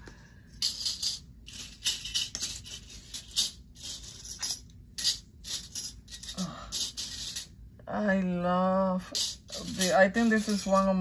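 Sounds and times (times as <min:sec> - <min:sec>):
small metal pieces clinking: 0:00.6 - 0:07.5.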